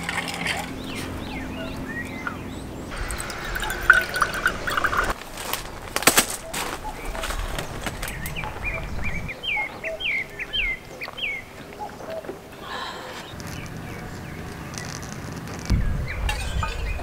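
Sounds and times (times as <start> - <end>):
bird whistling: 0.8 - 5.1, 8.1 - 12.3.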